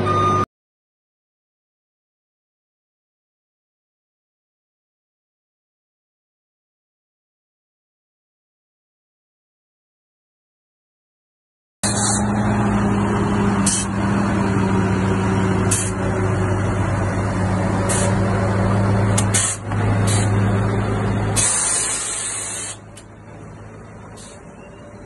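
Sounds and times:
diesel truck engine idling: 0:11.8 - 0:25.0
short air hisses: 0:11.9 - 0:12.3, 0:13.6 - 0:13.9, 0:15.7 - 0:16.0, 0:17.9 - 0:18.2, 0:19.2 - 0:20.4, 0:21.4 - 0:22.9.

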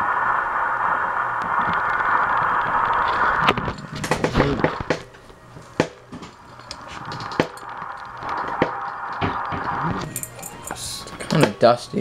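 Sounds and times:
steady hiss: 0:00.0 - 0:12.0
handling clicks and knocks: 0:03.6 - 0:11.6.

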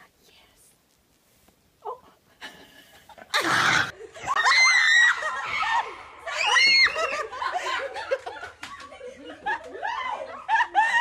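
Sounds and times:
woman screaming: 0:03.4 - 0:07.2.

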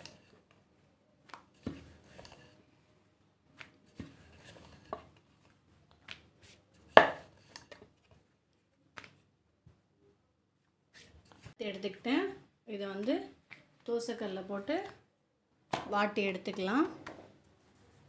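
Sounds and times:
faint rubbing of dough: 0:00.0 - 0:08.2, 0:17.2 - 0:18.0
rolling pin knocking on board: 0:07.0 - 0:07.3.

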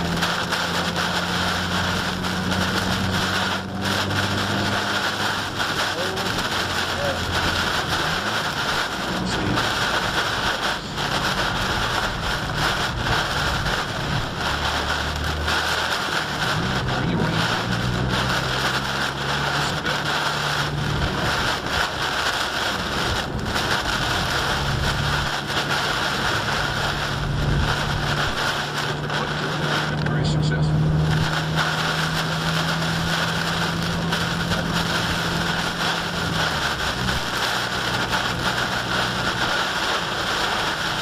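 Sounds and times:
heavy rain on car roof: 0:00.0 - 0:41.0
wind gusts buffeting car: 0:00.0 - 0:41.0.

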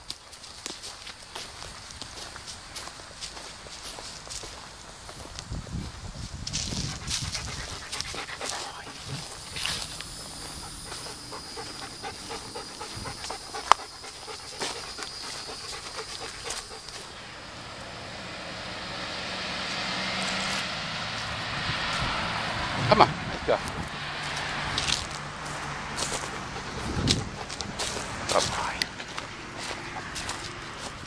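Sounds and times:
rustling in dry leaves: 0:00.0 - 0:17.4, 0:24.2 - 0:31.0
road traffic noise: 0:00.0 - 0:31.0
dog panting: 0:06.6 - 0:17.3, 0:25.4 - 0:31.0.

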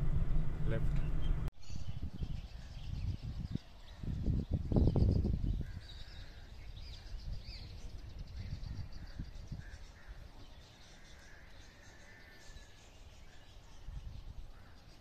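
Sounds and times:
loud low rumble: 0:00.0 - 0:01.5
birds chirping: 0:00.0 - 0:15.0
low outdoor background: 0:00.0 - 0:15.0.

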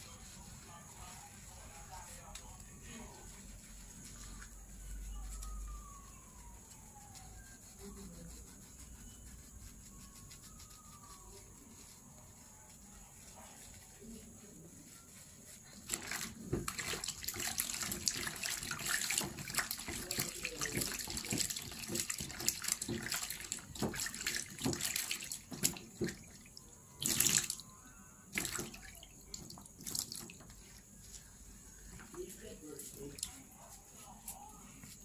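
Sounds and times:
tap water splashing into sink: 0:15.9 - 0:26.4, 0:28.3 - 0:30.5.

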